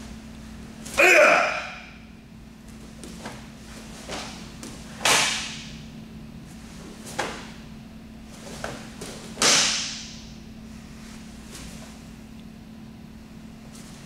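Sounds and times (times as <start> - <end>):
cloth snapping with kicks: 3.0 - 5.7, 7.0 - 7.6, 8.5 - 10.2.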